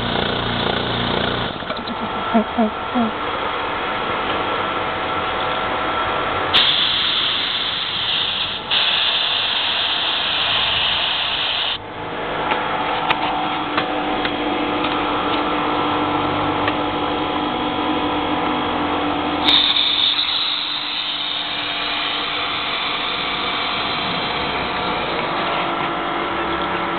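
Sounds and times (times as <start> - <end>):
air compressor running: 0.0 - 26.9
compressed air hissing from valve: 6.5 - 11.8, 19.4 - 24.5.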